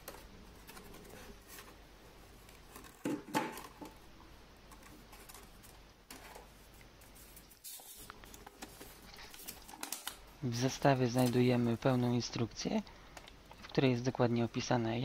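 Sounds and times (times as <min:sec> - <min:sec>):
plastic blister pack rustling: 0:04.7 - 0:12.2
plastic clicks and crackles: 0:08.0 - 0:10.2.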